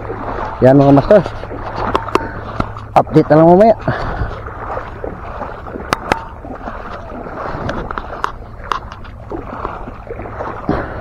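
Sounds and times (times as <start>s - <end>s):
water sloshing around wading legs: 0.0s - 11.0s.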